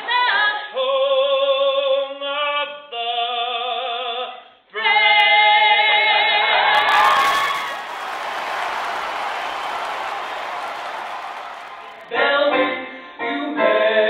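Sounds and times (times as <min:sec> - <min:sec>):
audience applause: 0:06.7 - 0:12.1.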